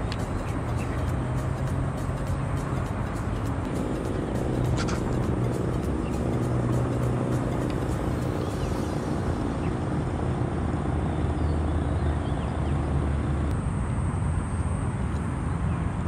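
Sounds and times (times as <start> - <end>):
distant traffic rumble: 0.0 - 16.0
thin high whine: 13.5 - 16.0.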